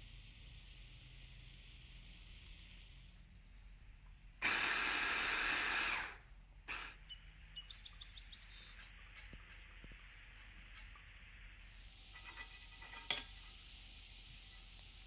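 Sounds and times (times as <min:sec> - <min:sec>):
hand blender chopper whirring: 0:04.4 - 0:07.0.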